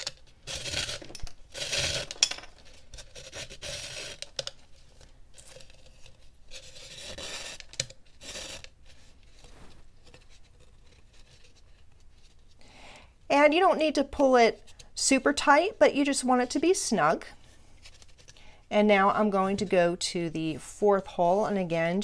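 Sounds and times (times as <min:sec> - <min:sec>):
leather lace rasping against gourd: 0:00.4 - 0:02.2.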